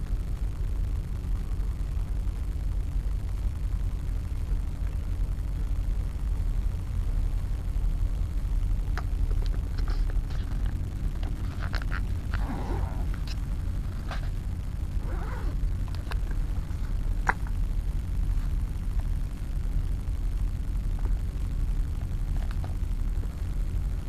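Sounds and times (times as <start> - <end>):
fabric rustling: 9.8 - 17.6
buckles and zips clicking: 15.0 - 16.3.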